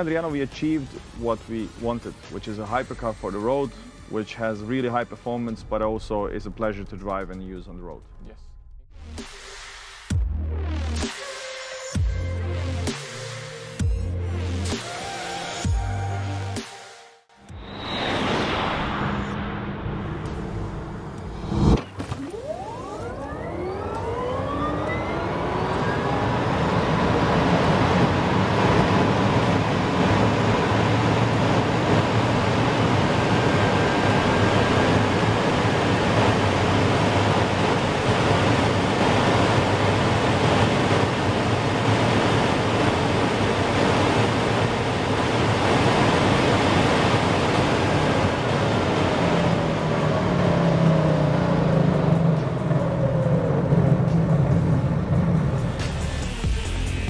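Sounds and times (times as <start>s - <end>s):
wind and tyre noise: 17.5s - 55.9s
electric motor whine: 21.5s - 42.1s.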